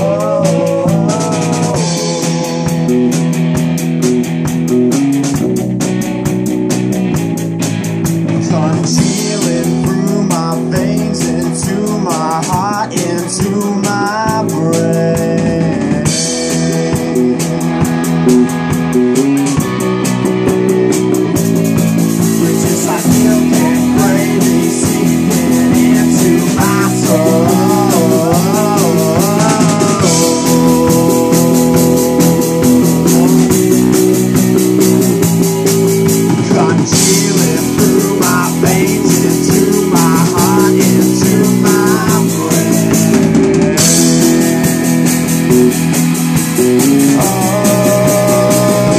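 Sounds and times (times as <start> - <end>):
man singing: 0.0 - 3.4, 8.3 - 18.6, 21.8 - 48.9
bass guitar: 0.0 - 48.9
drum kit: 0.0 - 48.9
electric guitar: 0.0 - 48.9.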